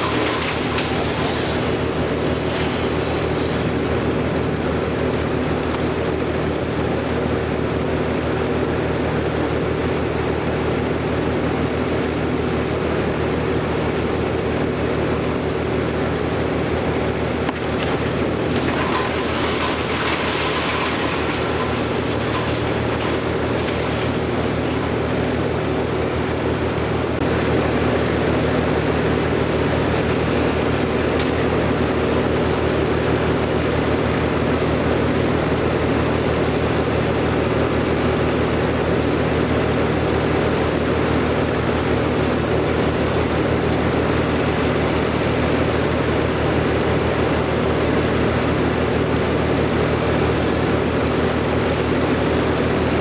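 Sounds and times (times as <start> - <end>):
chainsaw running: 0.0 - 4.5, 17.0 - 26.8
diesel loader tractor engine: 0.0 - 53.0.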